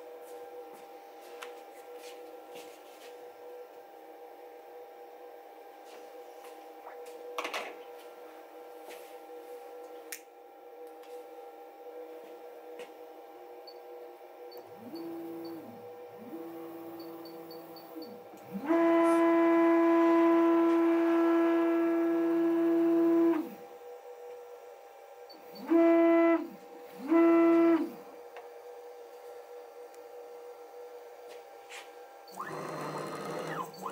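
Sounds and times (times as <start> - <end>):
stepper motors buzzing: 14.5 - 23.7, 25.4 - 28.1, 32.3 - 33.9.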